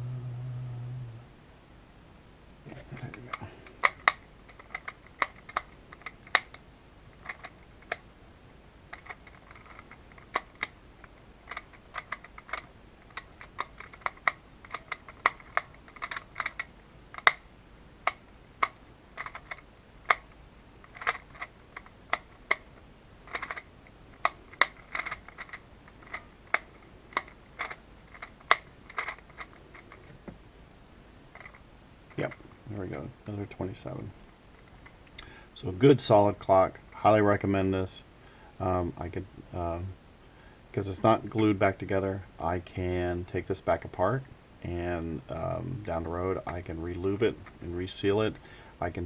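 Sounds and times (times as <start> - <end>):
puzzle clicking rapidly: 2.8 - 6.6, 7.2 - 8.0, 8.9 - 30.2, 31.3 - 32.5.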